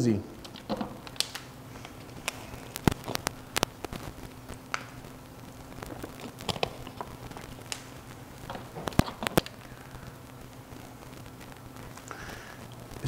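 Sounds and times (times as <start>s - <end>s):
steady low hum: 0.0s - 13.0s
plastic bottle crinkling: 0.4s - 5.0s, 5.8s - 9.6s.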